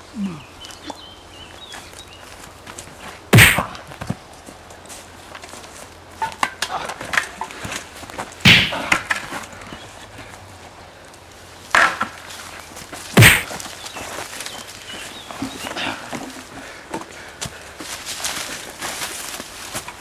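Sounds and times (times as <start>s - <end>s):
footsteps on forest path: 0.6s - 6.1s, 9.2s - 20.0s
loud thuds: 3.3s - 3.8s, 8.5s - 8.9s, 13.2s - 13.5s.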